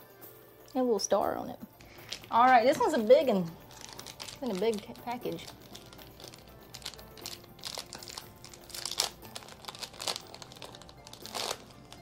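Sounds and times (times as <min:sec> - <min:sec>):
snack wrapper crinkling and tearing: 0:01.9 - 0:02.3, 0:03.6 - 0:12.0.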